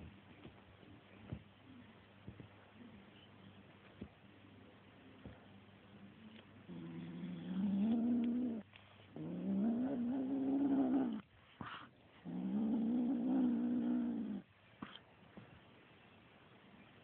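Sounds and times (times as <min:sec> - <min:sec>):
kitten growling: 0:06.7 - 0:15.0.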